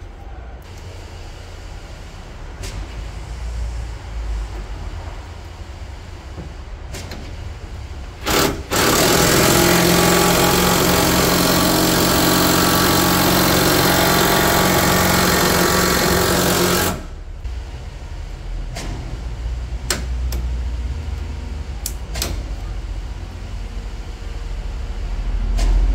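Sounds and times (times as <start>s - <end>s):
cordless drill running: 8.2s - 17.1s.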